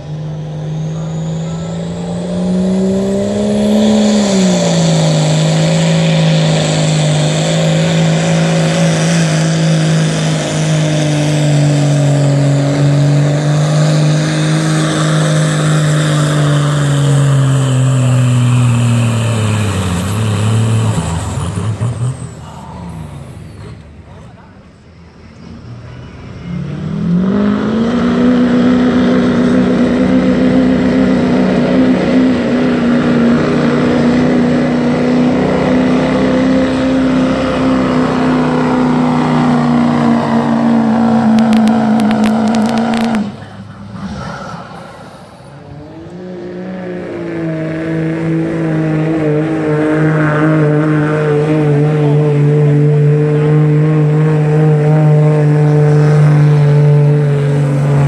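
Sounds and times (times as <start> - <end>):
diesel truck engine at full throttle: 0.0 - 58.0
second diesel truck engine: 0.0 - 58.0.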